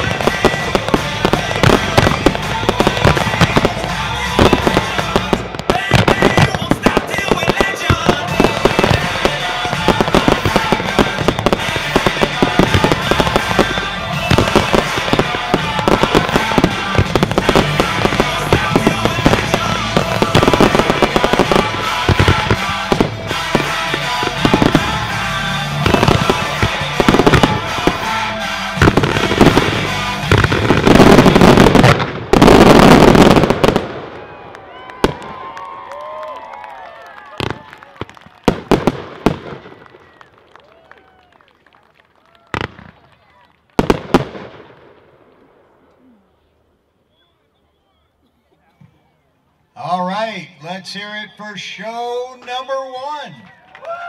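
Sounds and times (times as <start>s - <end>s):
music: 0.0s - 31.8s
fireworks bangs and crackle: 0.0s - 45.8s.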